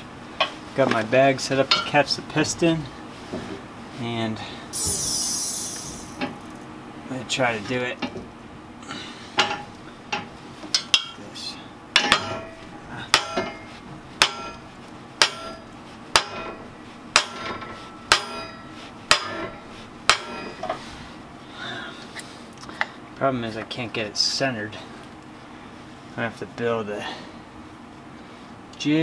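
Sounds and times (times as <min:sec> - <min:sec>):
metal-on-metal knocks ringing: 0:12.0 - 0:13.6, 0:14.2 - 0:14.6, 0:15.2 - 0:15.6.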